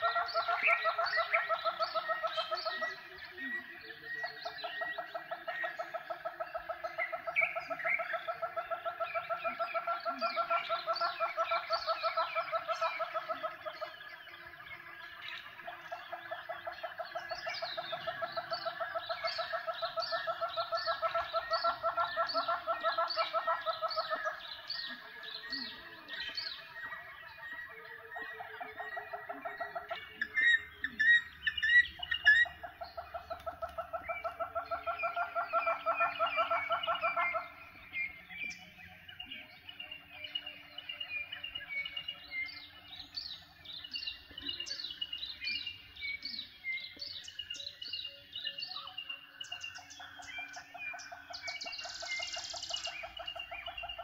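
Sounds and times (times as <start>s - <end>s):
birds chirping and trilling: 0.0s - 54.0s
bird rapid chattering call: 14.8s - 38.7s, 49.4s - 54.0s.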